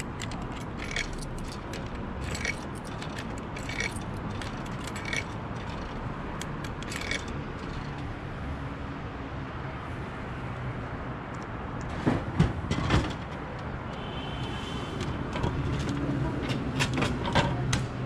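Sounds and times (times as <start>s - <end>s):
coins clinking into vending machine: 0.0s - 8.0s.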